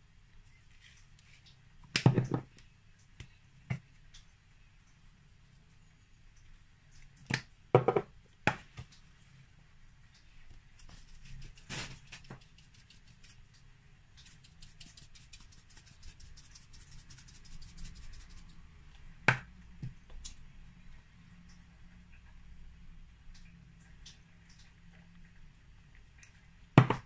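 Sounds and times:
rustle: 10.1s - 19.0s
spice shaken from jar ticking: 10.8s - 13.5s, 14.2s - 18.6s.

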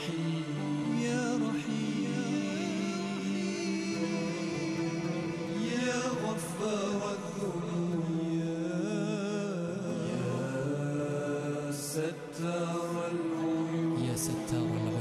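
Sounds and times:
sustained background tones: 0.0s - 15.0s
person chanting long notes: 9.7s - 15.0s.

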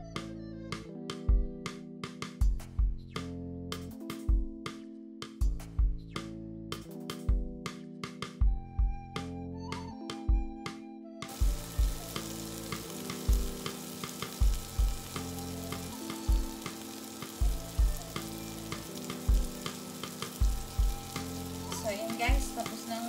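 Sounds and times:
background music with beat: 0.0s - 23.0s
shrimp sizzling in oil: 11.3s - 23.0s.

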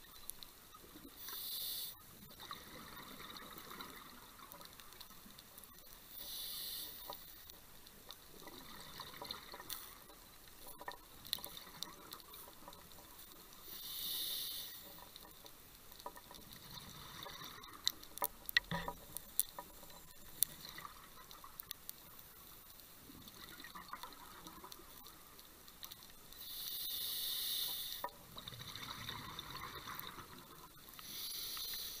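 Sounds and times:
faint underwater crackle: 0.0s - 32.0s
scuba regulator exhaust bubbles: 2.4s - 4.5s, 8.4s - 9.7s, 28.3s - 31.2s.

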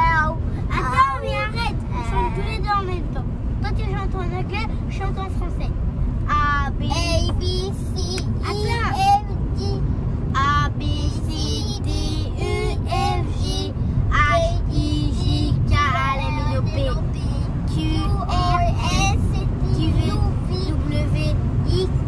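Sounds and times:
low road noise rumble: 0.0s - 22.0s.

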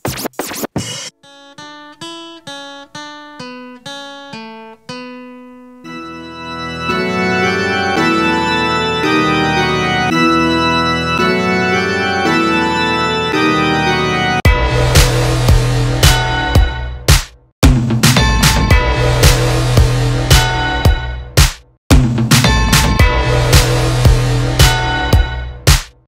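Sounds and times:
band playing sustained chords: 5.9s - 16.0s.

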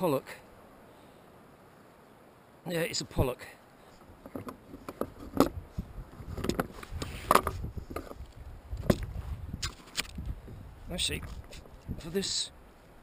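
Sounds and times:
fishing gear clattering on kayak: 4.0s - 10.3s.

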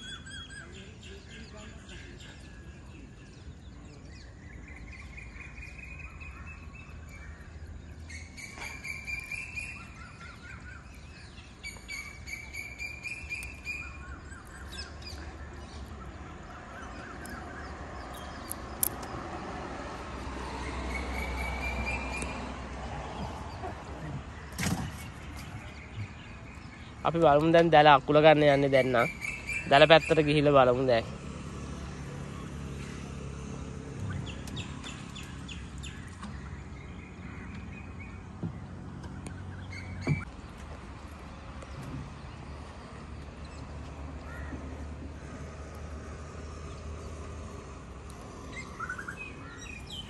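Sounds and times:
birds whistling calls: 0.0s - 19.2s, 20.4s - 27.4s, 28.2s - 30.7s, 32.2s - 40.4s, 46.6s - 50.0s.

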